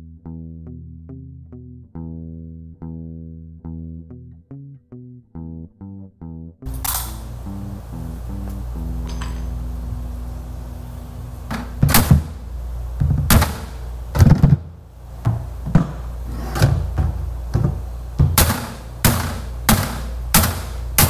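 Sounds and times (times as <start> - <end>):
steady low hum: 6.6 - 21.0
sharp knocks and thuds: 16.6 - 20.7.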